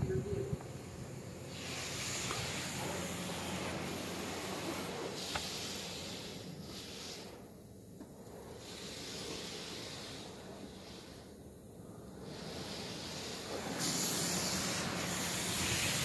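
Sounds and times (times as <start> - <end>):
water spray hissing on car: 0.0 - 16.0.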